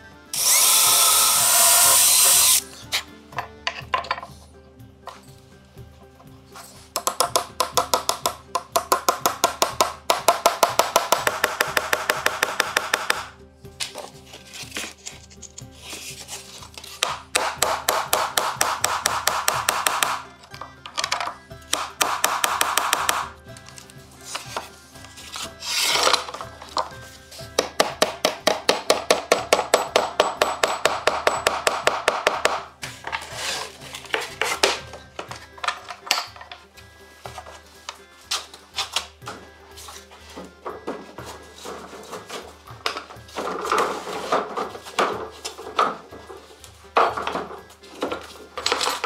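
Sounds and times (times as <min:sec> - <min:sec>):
hammer tapping nail into wood: 0:07.0 - 0:13.3, 0:17.0 - 0:20.2, 0:21.7 - 0:23.3, 0:27.6 - 0:32.7
wooden board shifted with knocks: 0:38.4 - 0:49.0.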